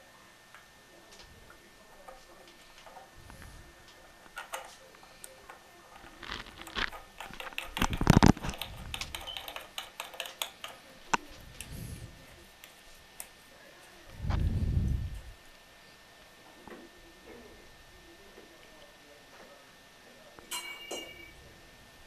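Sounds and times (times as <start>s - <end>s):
plastic nut clicking and rattling: 6.0s - 10.8s.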